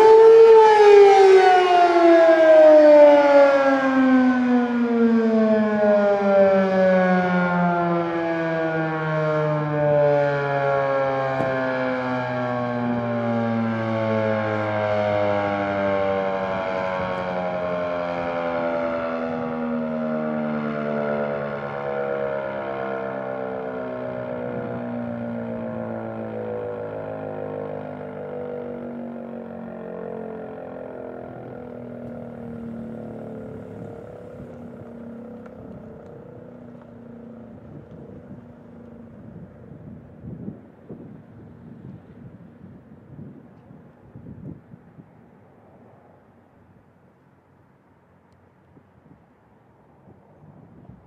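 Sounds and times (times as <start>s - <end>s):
warning siren winding down: 0.0s - 43.4s.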